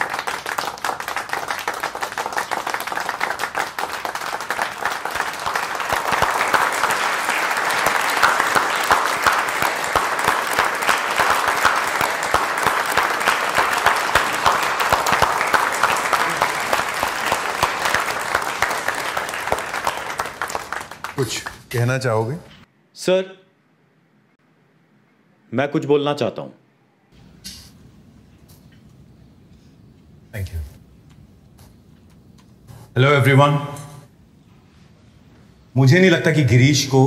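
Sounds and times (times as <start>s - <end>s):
crowd applauding: 0.0s - 22.1s.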